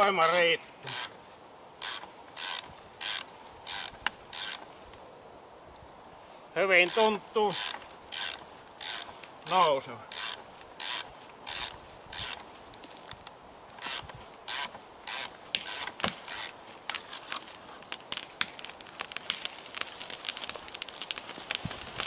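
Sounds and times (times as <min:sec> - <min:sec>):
ratchet cranking: 0:01.8 - 0:04.6, 0:06.9 - 0:09.1, 0:10.1 - 0:12.4, 0:13.1 - 0:16.5
wood fibres snapping: 0:01.8 - 0:05.0, 0:06.9 - 0:22.0.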